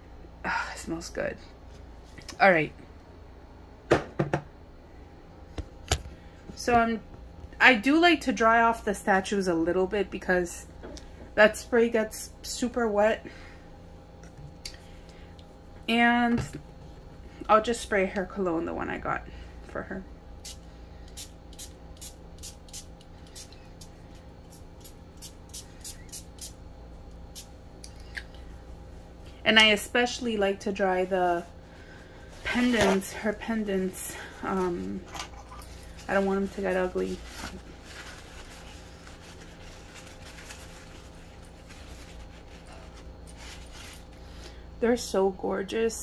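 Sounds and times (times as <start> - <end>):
steady low hum: 0.0 - 46.0
paper towel rustling: 35.8 - 44.1.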